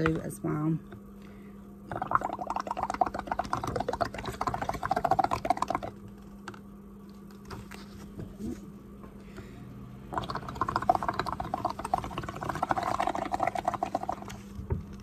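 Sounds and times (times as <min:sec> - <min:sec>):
bubbling through a straw: 0:01.8 - 0:06.4, 0:10.1 - 0:15.0.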